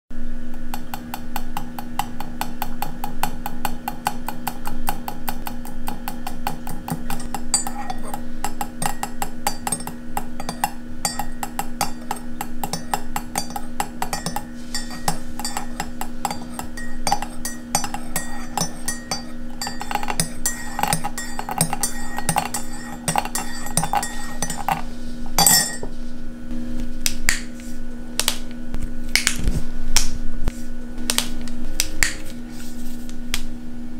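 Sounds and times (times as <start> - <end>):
teaspoon clinking in ceramic cup: 6.8 - 25.9
finger snaps: 27.0 - 27.5, 29.1 - 30.2.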